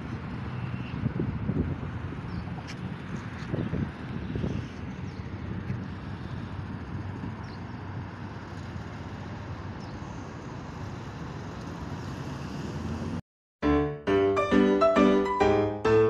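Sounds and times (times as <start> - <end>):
highway traffic noise: 0.0 - 13.2.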